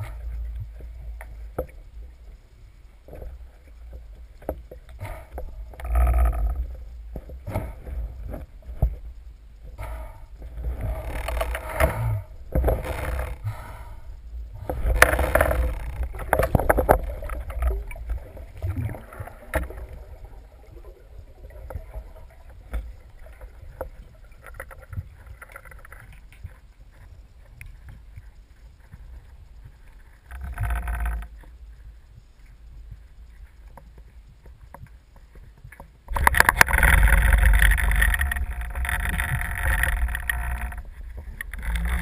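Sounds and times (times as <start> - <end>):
water rushing and bubbling: 0.0 - 27.4, 36.1 - 42.0.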